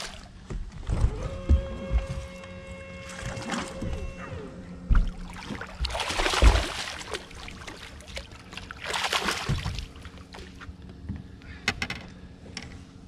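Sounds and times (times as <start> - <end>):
faint steady hum: 0.0 - 13.0
fish splashing at water surface: 5.2 - 10.6.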